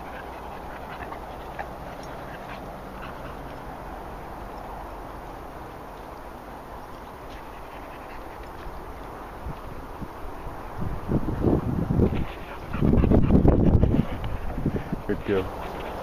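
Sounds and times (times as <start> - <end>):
dogs panting: 0.0 - 9.8, 12.0 - 16.0
dogs moving through grass: 0.0 - 10.7, 13.9 - 16.0
outdoor rustle: 0.0 - 16.0.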